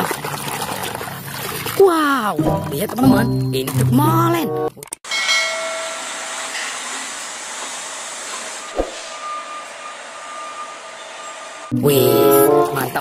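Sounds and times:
sharp thump: 8.8s - 9.0s.

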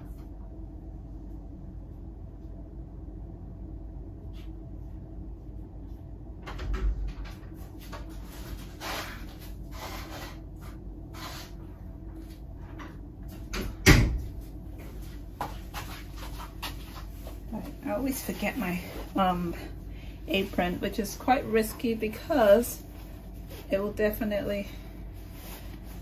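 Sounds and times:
low room hum: 0.0s - 26.0s
rustling and shuffling: 4.2s - 13.6s, 14.2s - 26.0s.

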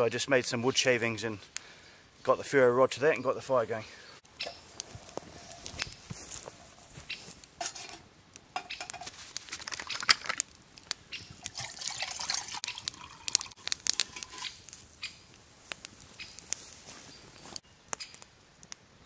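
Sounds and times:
wood fire crackling: 0.0s - 19.0s
water pouring into steel mug: 11.4s - 14.6s.

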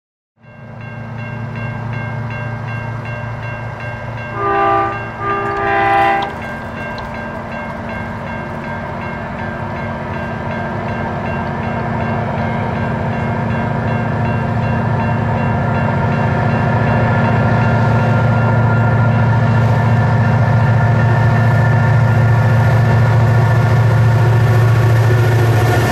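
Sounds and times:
diesel locomotive engines droning: 0.5s - 25.9s
train horn blasts: 4.3s - 6.5s.

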